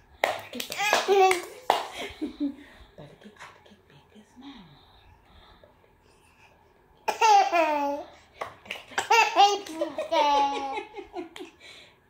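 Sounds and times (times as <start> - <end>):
light hand claps: 0.2 - 2.1
toddler girl laughing: 9.0 - 11.5.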